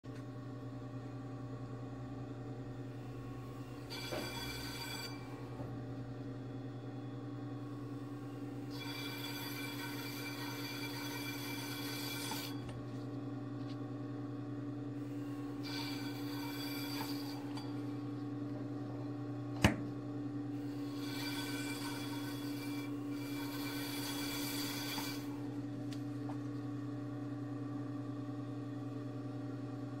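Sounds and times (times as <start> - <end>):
skiving machine humming: 0.1 - 30.0.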